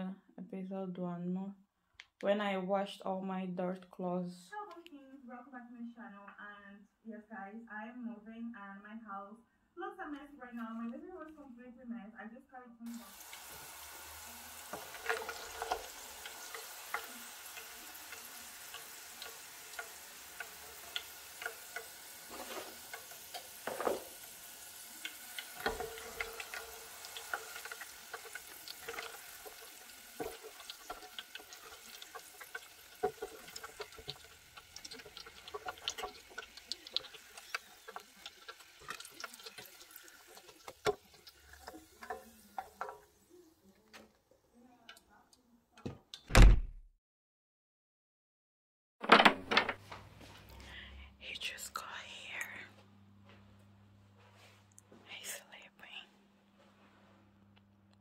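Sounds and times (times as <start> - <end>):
fries sizzling in hot oil: 12.9 - 44.2.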